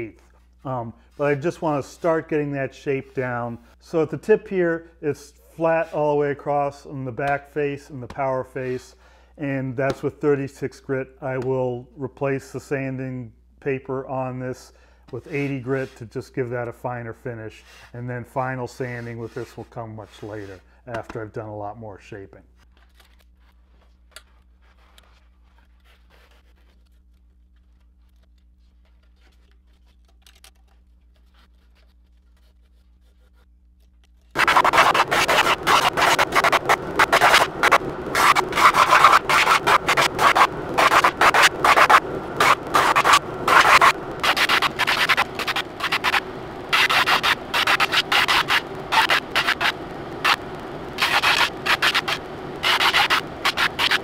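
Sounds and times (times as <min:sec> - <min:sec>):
drum sander grinding wood: 0:34.4 - 0:54.0.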